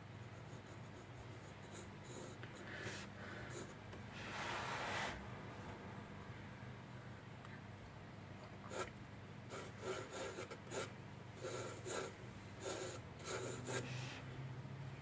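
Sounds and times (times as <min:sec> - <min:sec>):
pencil sketching on paper: 0:04.2 - 0:05.2, 0:09.5 - 0:14.0.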